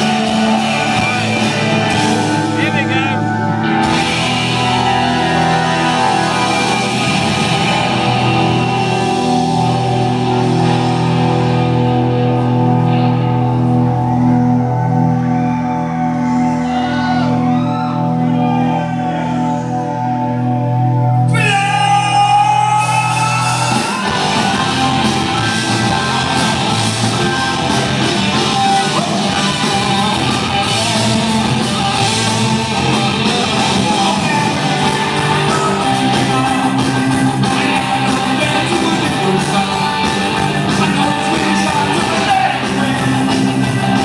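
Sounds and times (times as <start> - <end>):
guitar slide: 0.0 - 44.0
live punk rock band: 0.0 - 44.0.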